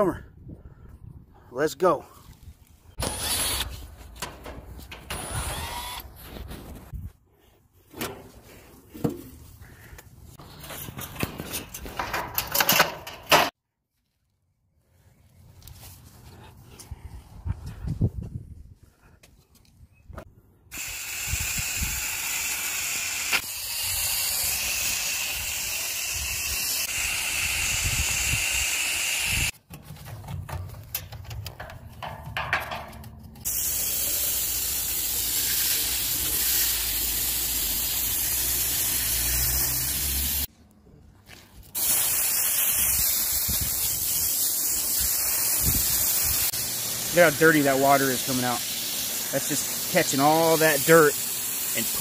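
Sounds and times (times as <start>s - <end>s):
hose water spraying: 20.7s - 29.5s, 33.4s - 40.5s, 41.6s - 52.0s.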